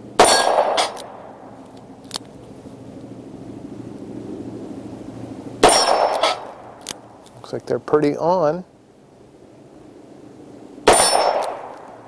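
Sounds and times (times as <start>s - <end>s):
steady low drone: 0.0s - 7.9s
revolver gunshot with echo: 0.2s - 1.2s, 5.6s - 6.7s, 10.8s - 12.0s.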